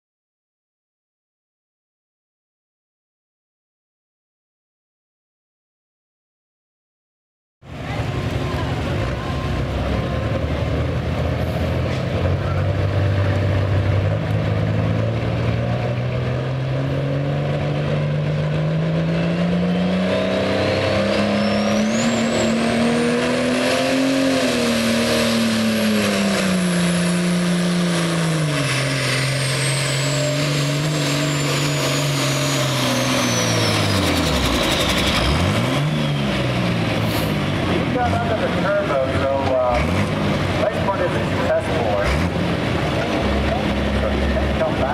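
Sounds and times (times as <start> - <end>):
diesel tractor engine revving: 7.7 - 44.9
turbocharger whistle: 19.2 - 37.3.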